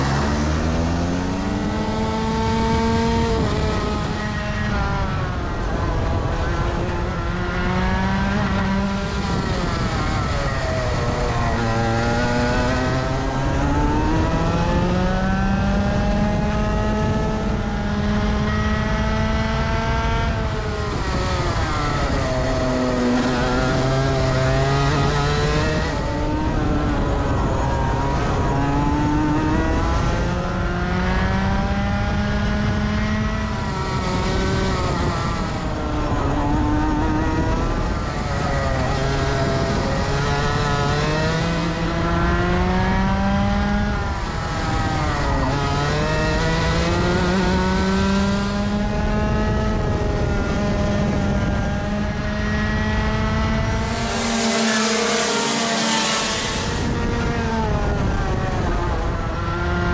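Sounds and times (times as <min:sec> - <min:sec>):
kart engine revving: 0:00.0 - 0:59.9.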